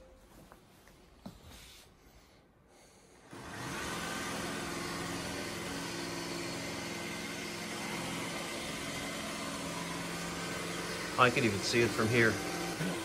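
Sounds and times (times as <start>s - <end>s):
robot vacuum motor humming: 3.3s - 13.0s.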